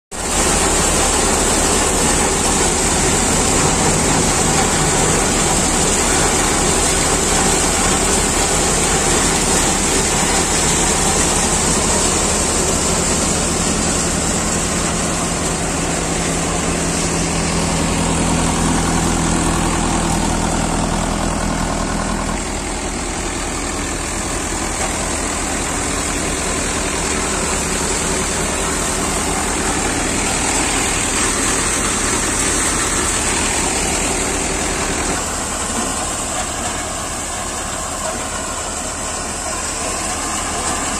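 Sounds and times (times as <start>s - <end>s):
diesel engine: 0.1s - 40.9s
thresher running under load: 0.1s - 40.9s.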